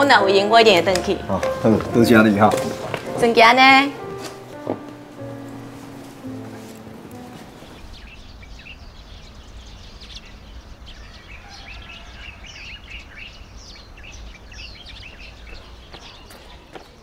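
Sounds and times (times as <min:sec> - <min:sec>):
small birds chirping: 0:04.8 - 0:17.0.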